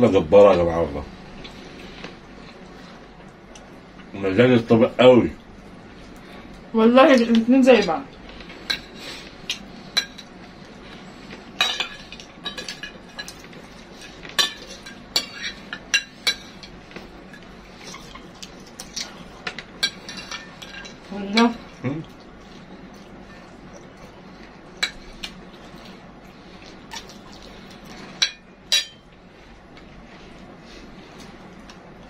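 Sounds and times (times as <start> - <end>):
spoons clinking on ceramic plates: 28.2 - 29.0.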